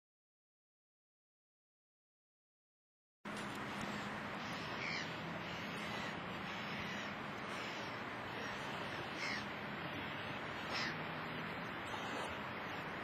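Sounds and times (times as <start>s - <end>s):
short bird calls: 3.9s - 11.0s.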